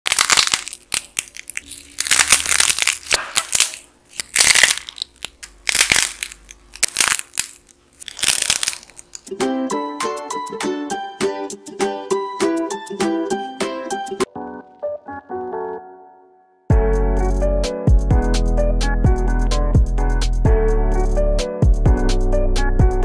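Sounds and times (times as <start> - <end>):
dry clay cracking and crunching: 0.0 - 9.3
plucked-string music: 9.3 - 14.2.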